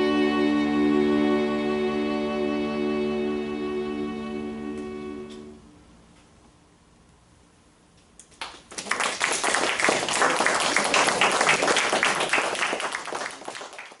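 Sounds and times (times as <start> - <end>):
audience applauding: 8.4 - 14.0.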